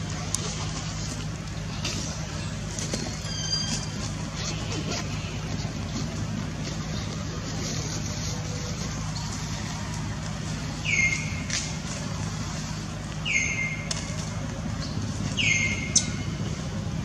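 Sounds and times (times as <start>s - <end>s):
steady low hum: 0.0s - 17.0s
baby monkey high calls: 15.4s - 16.4s.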